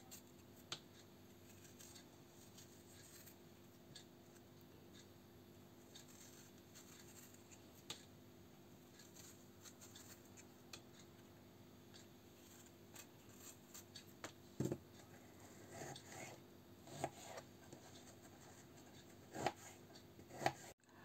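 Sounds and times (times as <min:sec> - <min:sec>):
knife scraping peeling fruit: 0:00.0 - 0:03.4, 0:05.8 - 0:08.0, 0:08.9 - 0:10.8, 0:12.3 - 0:14.0, 0:15.4 - 0:20.8.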